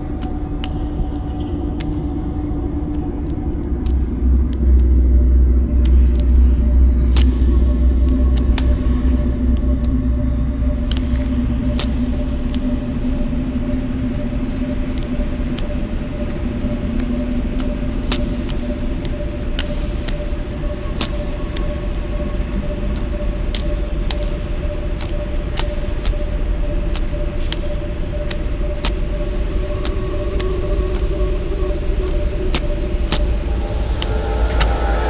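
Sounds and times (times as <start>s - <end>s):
held hum: 0.0s - 35.0s
low rumble: 0.0s - 35.0s
sharp clicks and ticks: 10.8s - 35.0s.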